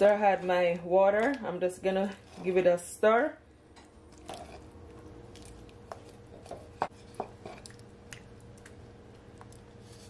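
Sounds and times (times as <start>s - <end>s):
spoon stirring wet food squelching: 3.8s - 10.0s.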